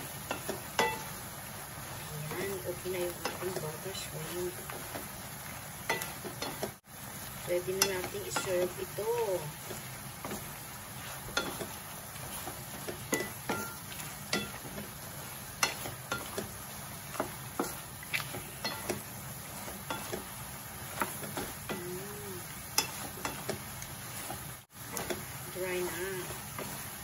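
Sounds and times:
shrimp sizzling in a frying pan: 0.0s - 27.0s
wooden spatula scraping a pan: 7.5s - 27.0s.

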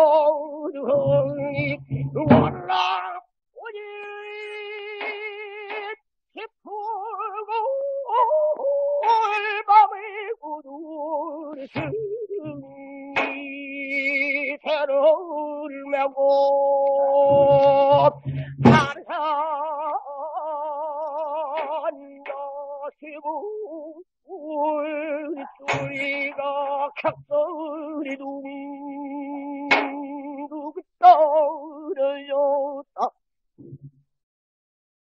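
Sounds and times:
man singing with vibrato: 0.0s - 33.2s
drum strokes: 0.9s - 2.7s, 17.3s - 18.9s.

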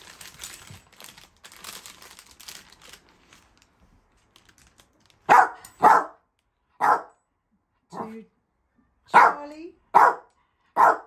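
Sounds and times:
paper bag crinkling: 0.0s - 5.3s
dog barking: 5.3s - 6.2s, 6.8s - 7.2s, 9.1s - 11.0s.

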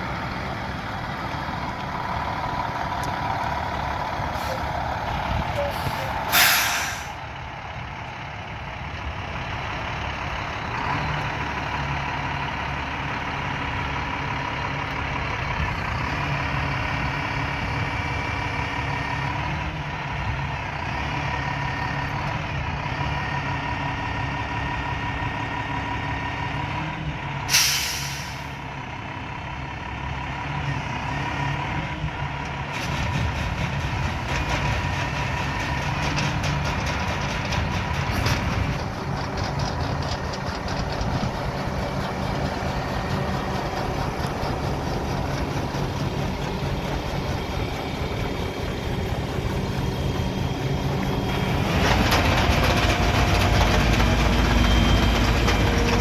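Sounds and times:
diesel engine running: 0.0s - 56.0s
air hiss: 5.8s - 7.2s
auger whining: 32.7s - 56.0s.

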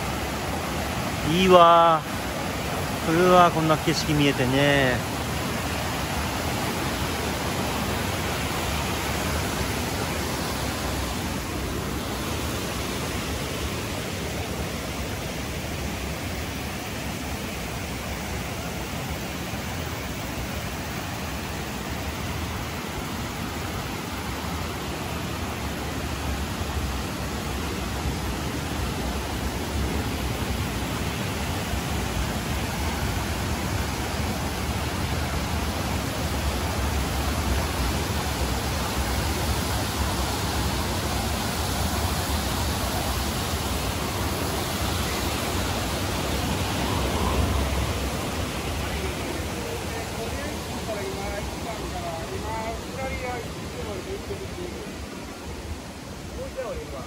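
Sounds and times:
stream rushing: 0.0s - 57.0s
wind rumbling on microphone: 26.5s - 53.9s.

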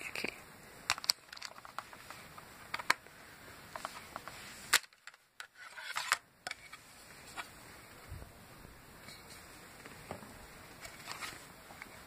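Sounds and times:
plastic calculator case clicking: 0.9s - 1.9s, 2.7s - 3.0s.

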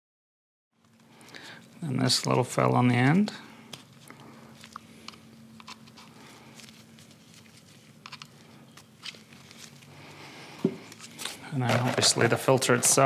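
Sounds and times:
faint steady hum: 0.8s - 13.0s
gloved hands handling small parts: 3.7s - 9.9s, 10.6s - 13.0s.

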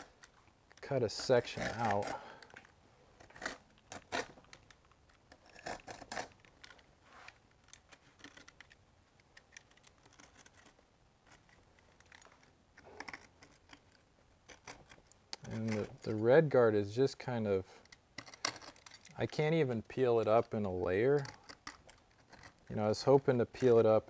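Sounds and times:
knife blade scraping membrane: 1.3s - 2.4s.

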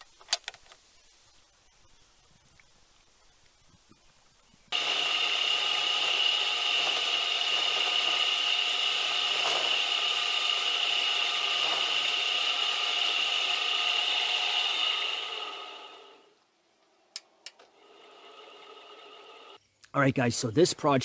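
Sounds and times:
cutting tool chatter on metal: 4.7s - 16.2s
lathe motor whining: 4.7s - 16.4s, 17.5s - 19.6s.

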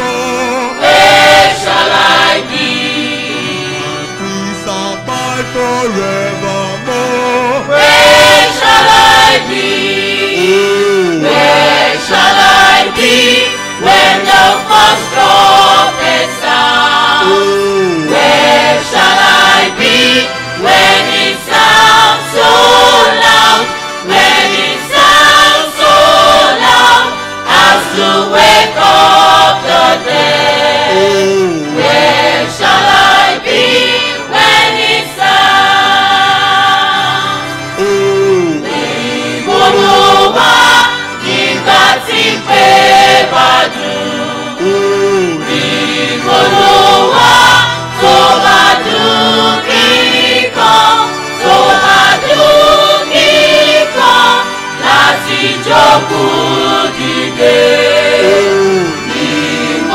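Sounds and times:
gospel choir singing: 0.0s - 59.9s.

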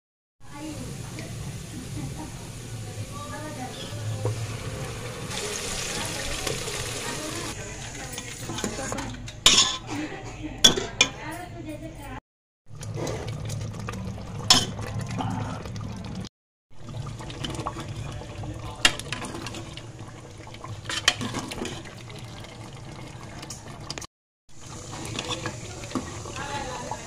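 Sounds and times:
chicken sizzling in a hot pan: 0.4s - 8.0s, 24.6s - 27.0s
metal ladle clinking against pan: 9.3s - 9.9s.

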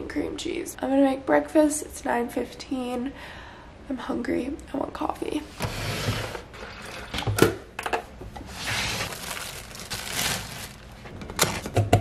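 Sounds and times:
rustling: 8.4s - 11.7s
plastic bag crinkling: 8.5s - 11.8s.

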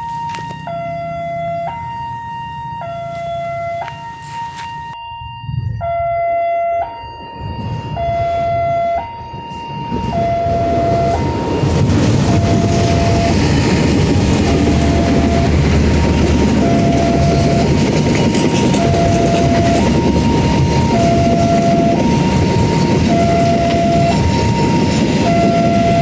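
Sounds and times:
diesel locomotive engine rumble: 0.0s - 26.0s
level crossing alarm two tones: 0.0s - 26.0s
train wheels on rails: 3.0s - 4.7s, 7.6s - 26.0s.

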